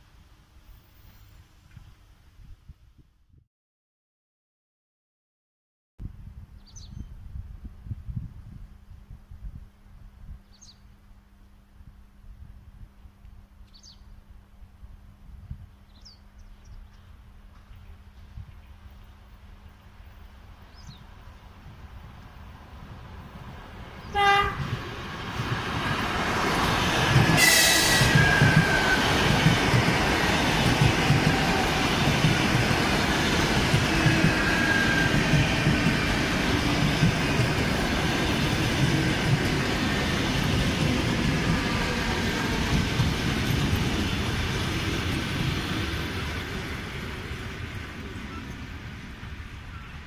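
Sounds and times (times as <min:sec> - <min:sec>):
train wheels rolling on rail: 0:18.8 - 0:50.0
train horn toot: 0:24.0 - 0:24.8, 0:27.3 - 0:29.3
train screech: 0:26.6 - 0:36.4.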